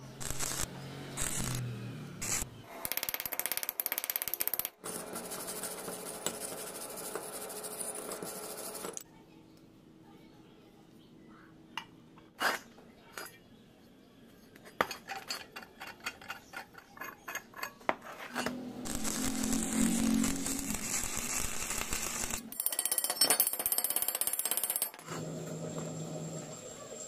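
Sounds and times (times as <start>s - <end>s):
steel parts scraping: 14.6s - 23.6s.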